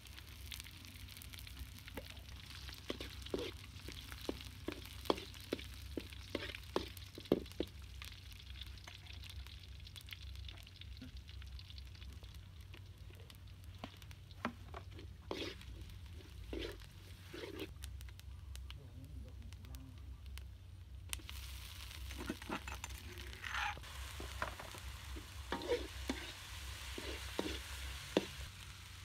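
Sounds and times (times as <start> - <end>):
food sizzling in oil: 0.0 - 17.8, 21.1 - 29.0
metal spoon scraping a wok: 2.8 - 3.6, 4.7 - 5.4, 14.9 - 17.7, 22.1 - 28.4.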